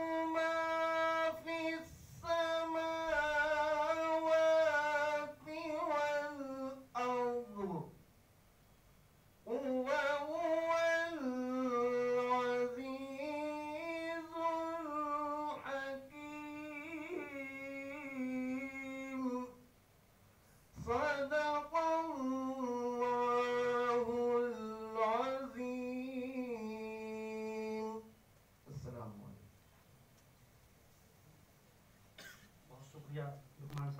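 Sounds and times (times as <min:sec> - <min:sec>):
man singing unaccompanied: 0:00.0 - 0:08.0, 0:09.4 - 0:19.7, 0:20.7 - 0:28.2.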